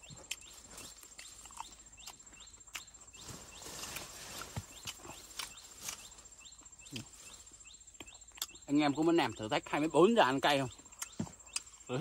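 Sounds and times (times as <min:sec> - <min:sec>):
chewing crispy chicken: 0:00.0 - 0:02.9
insect chirring: 0:00.0 - 0:12.0.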